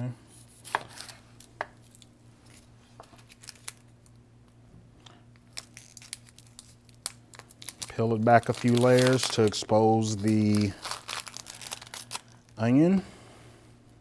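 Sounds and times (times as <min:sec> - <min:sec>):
onion skin crackling and tearing: 0:01.8 - 0:04.1, 0:05.4 - 0:12.6.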